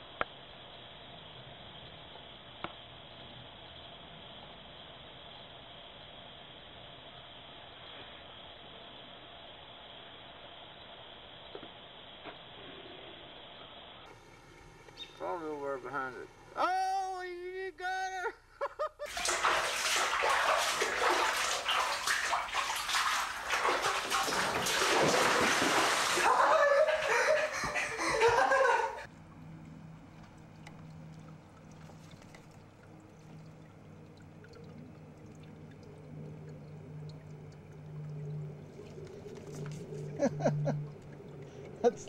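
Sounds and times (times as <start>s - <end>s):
faint low hum: 0.0s - 42.0s
water running into bathtub: 19.0s - 42.0s.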